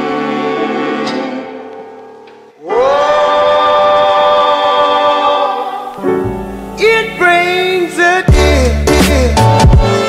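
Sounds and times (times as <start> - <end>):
deep bass: 8.3 - 10.0.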